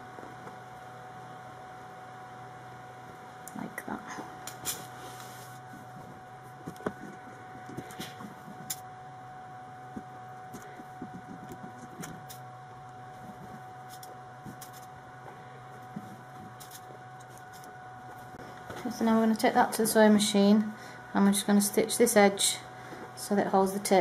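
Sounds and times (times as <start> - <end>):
faint electrical hum: 0.0 - 24.0.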